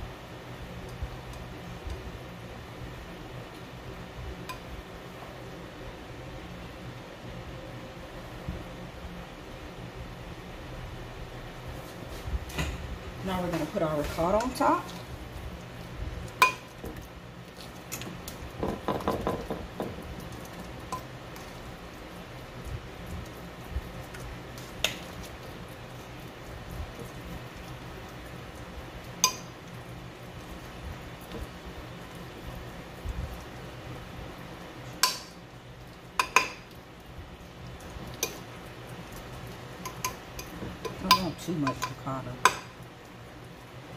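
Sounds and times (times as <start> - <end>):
low steady hum: 0.0 - 43.9
metal spoon clinking on dishes: 39.8 - 42.7.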